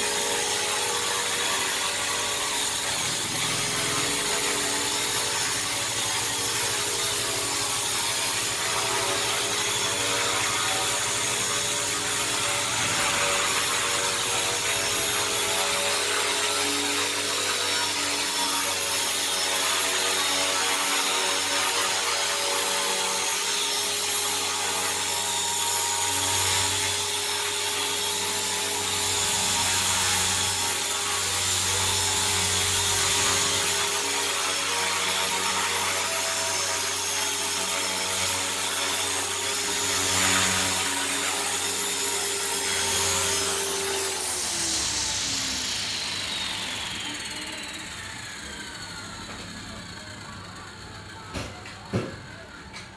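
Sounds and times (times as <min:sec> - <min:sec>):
model helicopter buzzing whine: 0:00.0 - 0:52.9.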